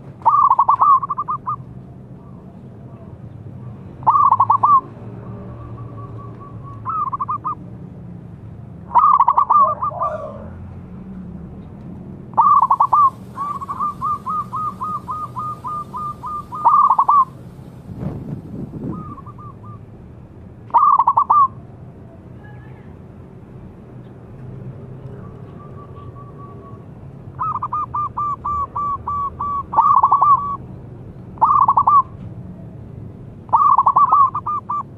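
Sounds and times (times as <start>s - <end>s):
dove cooing: 0.2s - 1.6s, 4.0s - 4.9s, 5.8s - 7.6s, 8.9s - 10.6s, 12.4s - 17.6s, 18.9s - 19.8s, 20.8s - 21.5s, 27.4s - 30.6s, 31.4s - 32.1s, 33.5s - 34.9s.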